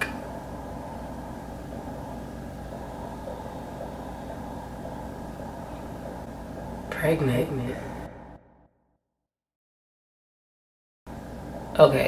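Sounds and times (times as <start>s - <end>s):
faint steady tones: 0.0s - 8.7s, 11.1s - 12.0s
low room hum: 0.0s - 8.8s, 11.1s - 12.0s.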